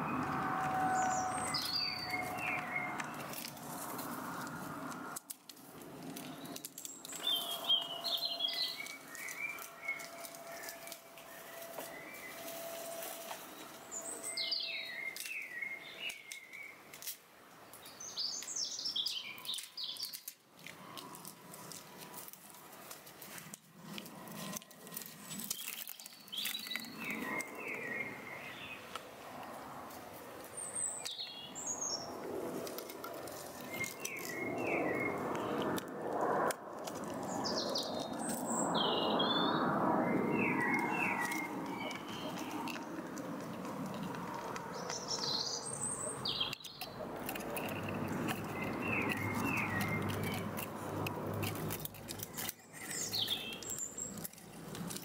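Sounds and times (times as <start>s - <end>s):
songbird singing chirpy phrases: 0.8s - 3.4s, 6.2s - 12.5s, 13.4s - 16.9s, 17.7s - 20.3s, 25.0s - 28.9s, 30.6s - 32.2s, 33.6s - 35.6s, 37.2s - 43.0s, 44.3s - 50.5s, 51.6s - 54.4s.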